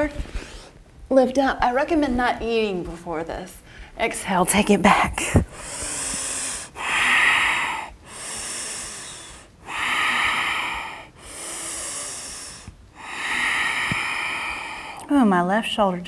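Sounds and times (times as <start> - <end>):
woman breathing slowly: 5.4 - 15.1.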